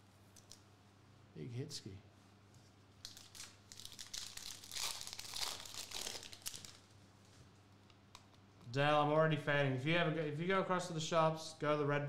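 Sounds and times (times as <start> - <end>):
foil wrapper crinkling: 3.0 - 6.9.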